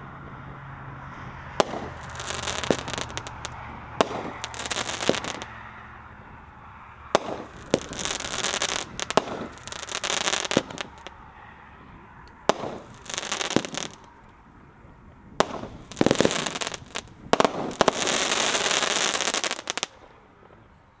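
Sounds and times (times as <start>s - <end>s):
firework crackling: 1.5s - 11.5s, 12.3s - 14.3s, 15.4s - 20.0s
firework shells bursting: 1.6s - 5.6s, 7.1s - 11.2s, 12.4s - 14.1s, 15.4s - 19.9s.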